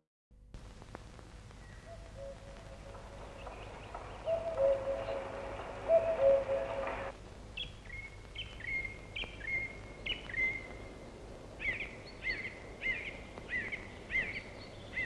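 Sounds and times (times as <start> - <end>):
faint low hum: 0.4 - 15.0
songbird whistled notes: 1.6 - 10.7.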